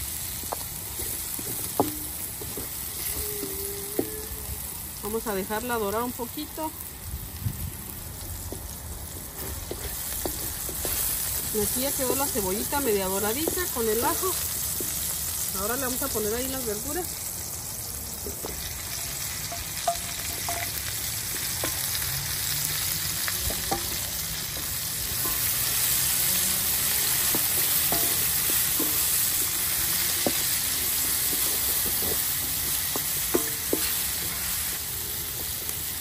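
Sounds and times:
vegetables sizzling in hot oil: 0:00.0 - 0:36.0
wooden spoon scraping a pan: 0:09.2 - 0:15.1, 0:23.4 - 0:35.8.

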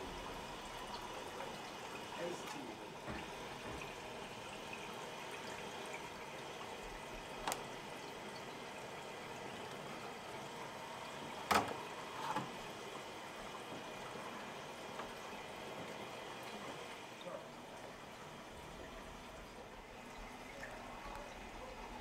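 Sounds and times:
faint water trickling: 0:00.0 - 0:22.0.

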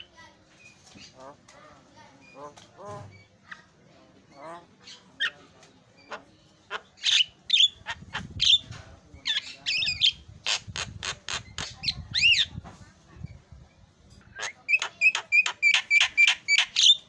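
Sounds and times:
bird chattering song: 0:04.3 - 0:12.6, 0:14.1 - 0:17.0.

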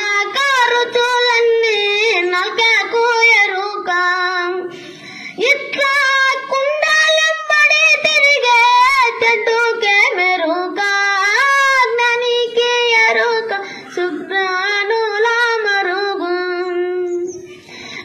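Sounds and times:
boy singing solo: 0:00.0 - 0:04.7, 0:05.4 - 0:17.4.

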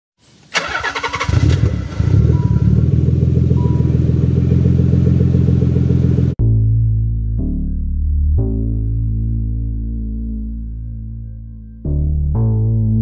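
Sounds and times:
engine starting and idling: 0:00.5 - 0:06.3.

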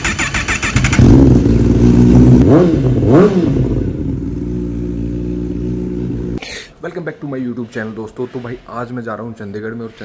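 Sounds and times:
motorcycle engine idling and revving: 0:00.0 - 0:06.4.

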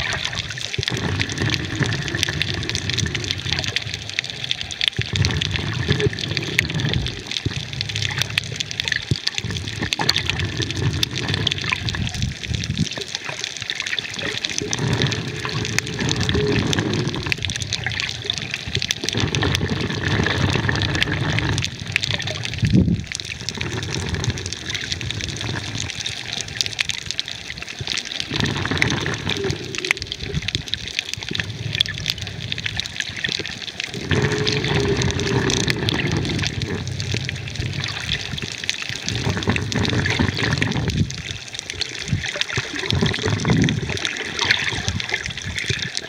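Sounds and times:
underwater water gurgling: 0:00.0 - 0:46.0.

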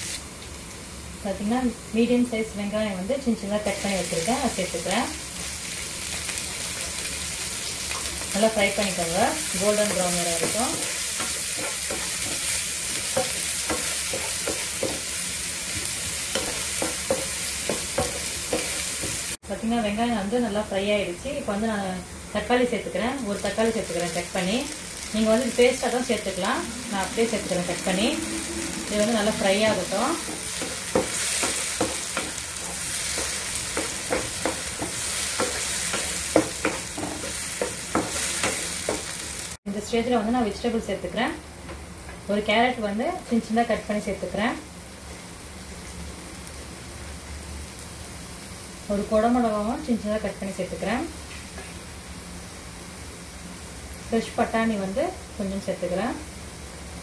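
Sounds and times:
onion sizzling in hot oil: 0:00.0 - 0:41.1, 0:43.2 - 0:57.0
spatula knocking and scraping pan: 0:09.8 - 0:19.3, 0:25.8 - 0:39.1.

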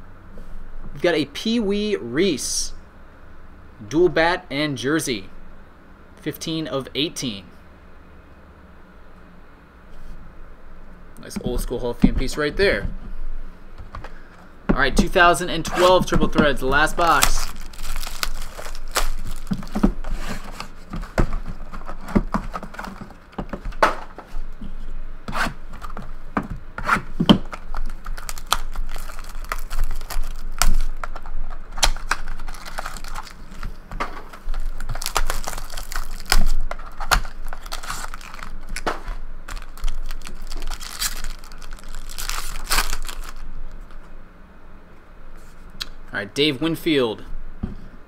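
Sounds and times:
foil wrapping crinkling: 0:16.6 - 0:24.2, 0:27.3 - 0:43.5
cardboard tearing: 0:16.8 - 0:23.3, 0:26.8 - 0:43.4.

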